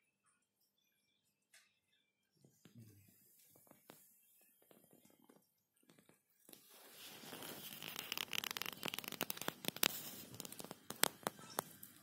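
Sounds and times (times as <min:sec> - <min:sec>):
leaves rustling and tearing: 0:06.6 - 0:11.3
bird beak clicking: 0:07.8 - 0:11.7.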